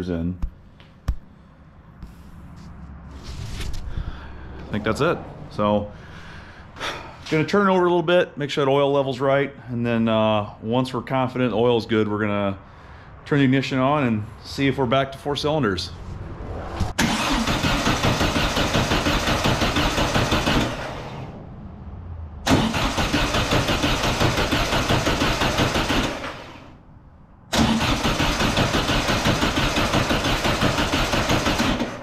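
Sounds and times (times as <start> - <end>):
starter cranking engine: 17.0 - 21.2, 22.5 - 26.7, 27.5 - 32.0.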